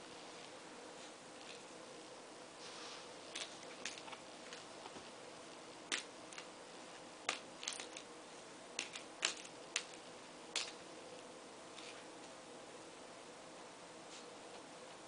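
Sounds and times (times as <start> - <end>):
low room hum: 0.0 - 15.0
toys clicking and rattling: 8.8 - 10.0.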